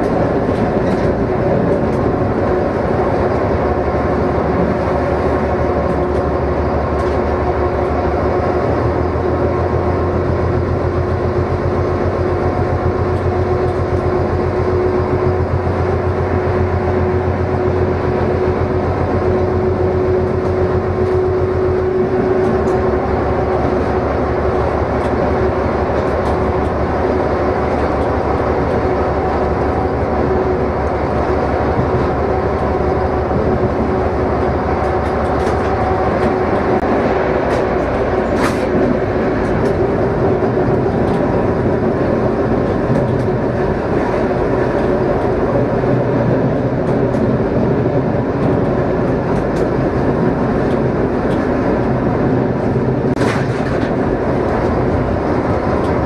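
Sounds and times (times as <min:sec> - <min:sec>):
diesel engine running: 0:00.0 - 0:56.0
wheels rumbling on rails: 0:00.0 - 0:56.0.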